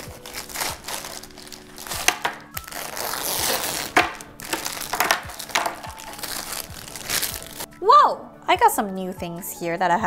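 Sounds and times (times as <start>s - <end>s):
plastic wrapping rustling: 0.0s - 7.7s
plastic toy pieces clattering: 3.4s - 6.5s.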